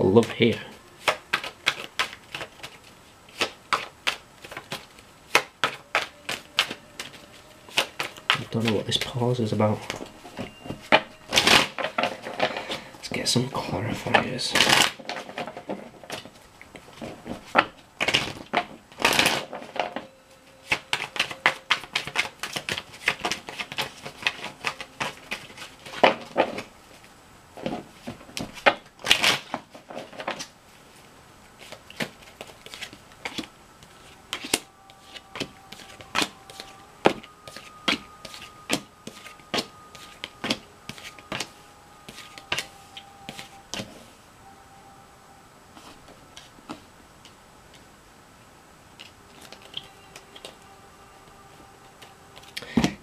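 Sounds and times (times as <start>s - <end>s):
cards being shuffled: 0.1s - 12.9s, 20.6s - 44.0s, 49.0s - 50.7s.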